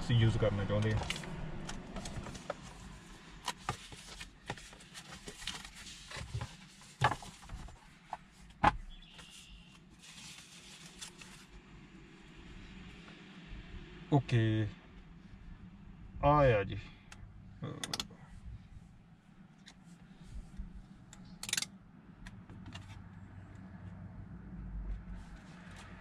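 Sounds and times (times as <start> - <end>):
paper and plastic rustling: 0.9 - 8.3, 9.1 - 11.5.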